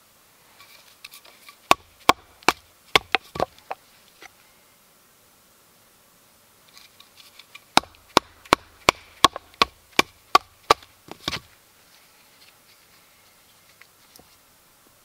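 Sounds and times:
wood splitting: 0:01.6 - 0:03.8, 0:07.7 - 0:11.5.

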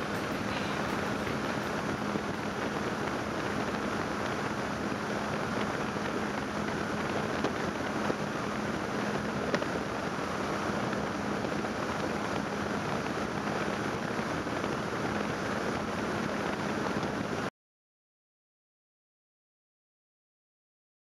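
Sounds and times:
outboard motor running: 0:00.0 - 0:09.8
water along hull: 0:00.0 - 0:17.5.

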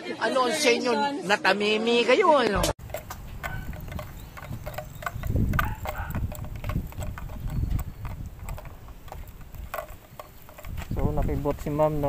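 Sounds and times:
handling clicks and knocks: 0:02.7 - 0:12.0
camera handling rumble: 0:02.8 - 0:11.5.

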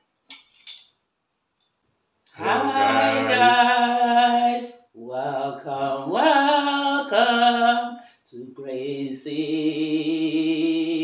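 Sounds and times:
man and woman singing: 0:02.3 - 0:11.0.

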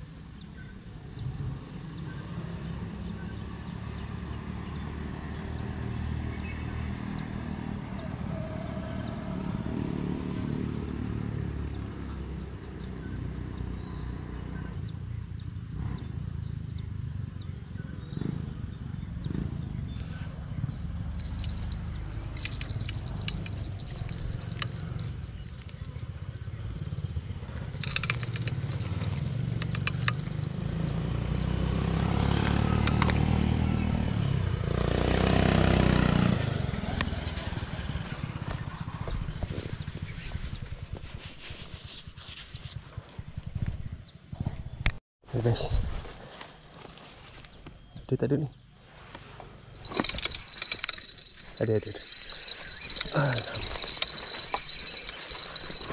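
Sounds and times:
lower-pitched insect call: 0:00.0 - 0:45.6, 0:46.4 - 0:55.9
insects chirring high tone: 0:19.7 - 0:34.6, 0:49.4 - 0:55.9
handling clicks: 0:21.2 - 0:27.0, 0:27.6 - 0:33.8, 0:49.8 - 0:55.9.

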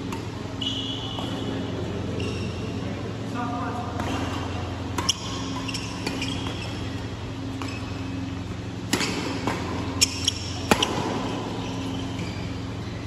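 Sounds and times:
steady low hum: 0:00.0 - 0:13.0
shoes squeaking on court floor: 0:00.5 - 0:02.9, 0:04.0 - 0:13.0
rackets hitting shuttlecock: 0:04.0 - 0:12.6.

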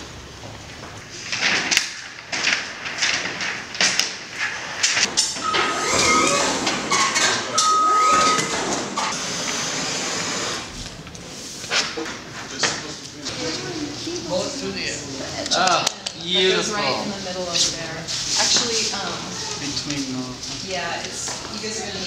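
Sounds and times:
knocks and clatter of work: 0:00.4 - 0:09.2
shifting mechanical sounds: 0:05.2 - 0:11.4
high electronic beep: 0:05.4 - 0:09.1.

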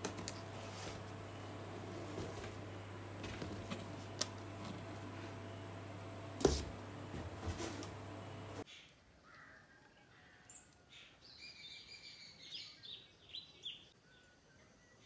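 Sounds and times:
cardboard boxes being handled: 0:00.0 - 0:05.5, 0:06.4 - 0:08.6
steady low hum: 0:00.0 - 0:08.6.

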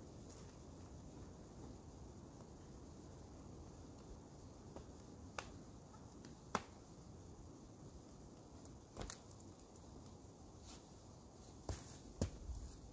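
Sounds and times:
climbing shoes scuffing on rock: 0:10.6 - 0:12.9.

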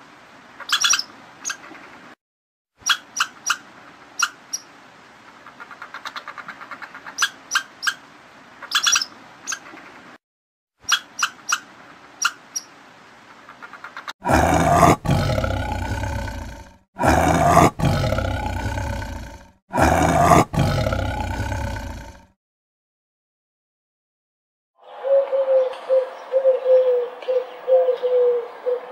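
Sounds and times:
ground squirrels squeaking: 0:00.7 - 0:01.7, 0:02.8 - 0:03.6, 0:08.6 - 0:09.9, 0:10.9 - 0:12.7
big cat roaring: 0:14.2 - 0:22.3.

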